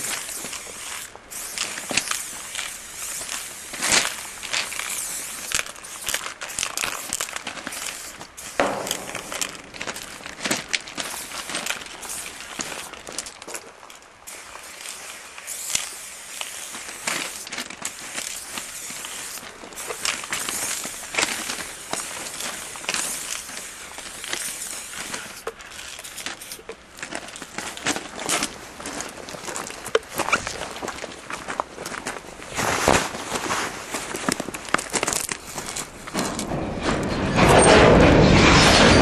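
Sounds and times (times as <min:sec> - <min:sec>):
footsteps on gravel: 0:00.0 - 0:14.1, 0:16.7 - 0:36.5
clothing and backpack rustling: 0:24.3 - 0:36.3.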